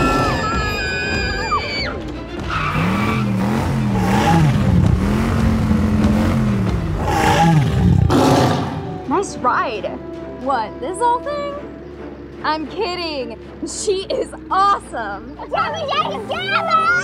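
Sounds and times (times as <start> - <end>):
background music: 0.0 - 17.0
tyres skidding: 0.0 - 17.0
car engine running hard: 2.0 - 9.1.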